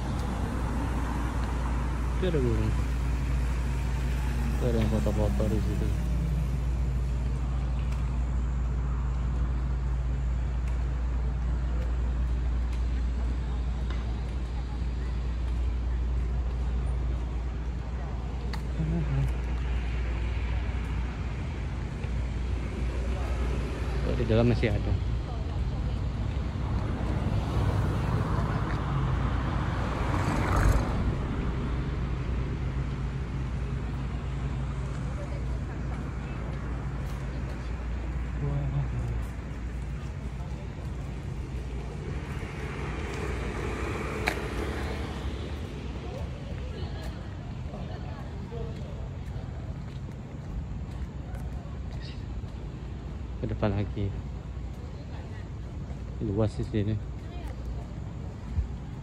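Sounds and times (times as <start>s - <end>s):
vehicle passing: 0.0s - 9.6s, 18.1s - 55.2s
city background rumble: 0.0s - 59.0s
constant low hum: 30.7s - 59.0s.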